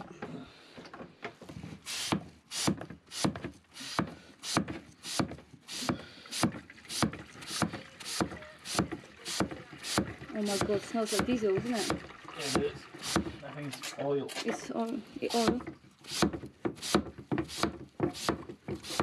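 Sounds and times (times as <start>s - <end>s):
hand pump strokes: 1.7s - 19.0s.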